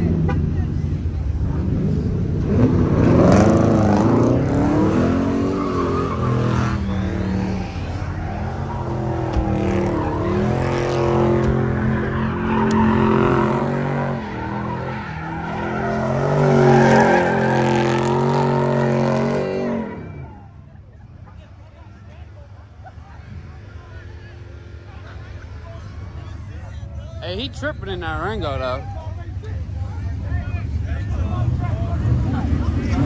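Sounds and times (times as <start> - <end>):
car engine revving hard: 1.5 - 20.3
tires squealing on pavement: 2.4 - 20.6.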